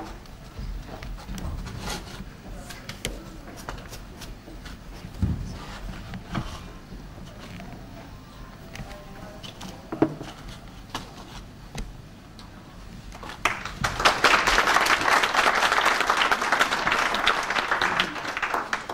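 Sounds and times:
audience applauding: 0:13.3 - 0:18.9.

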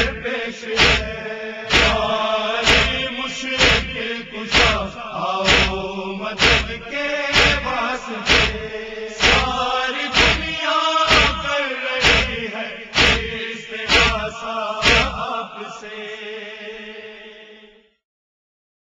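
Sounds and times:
person chanting: 0:00.0 - 0:17.8
heavy chest-beating thumps: 0:00.8 - 0:15.2.

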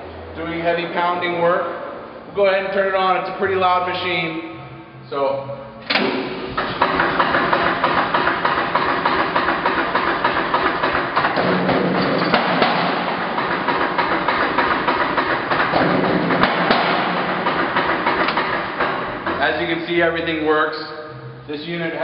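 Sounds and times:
power hammer blows: 0:05.9 - 0:19.9.

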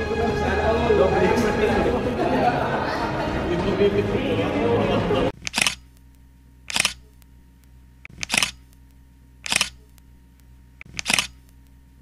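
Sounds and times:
camera shutter clicking: 0:05.4 - 0:05.9, 0:06.7 - 0:07.2, 0:08.1 - 0:08.8, 0:09.4 - 0:10.0, 0:10.8 - 0:11.6.

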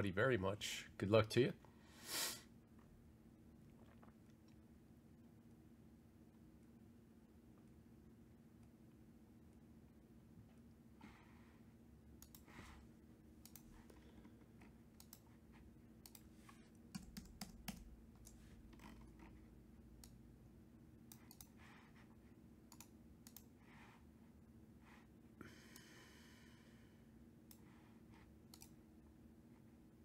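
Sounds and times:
faint steady hum: 0:00.0 - 0:30.0
faint clicks: 0:13.4 - 0:13.6, 0:21.1 - 0:21.6, 0:28.5 - 0:28.8.

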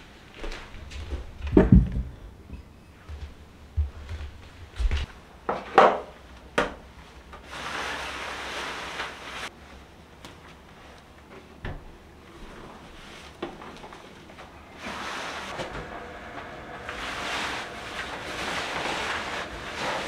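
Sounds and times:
wooden knocks and clunks: 0:01.2 - 0:02.3
steady hiss: 0:14.8 - 0:20.0.

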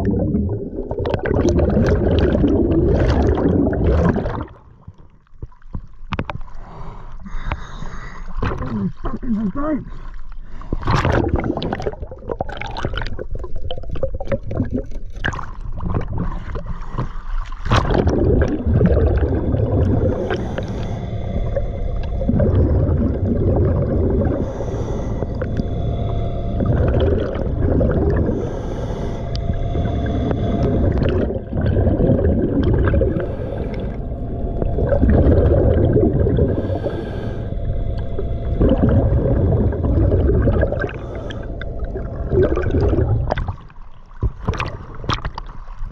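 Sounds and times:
bubbling exhaled air: 0:00.0 - 0:04.9, 0:10.4 - 0:45.9
diver breathing through regulator: 0:06.5 - 0:08.5, 0:18.5 - 0:43.3.

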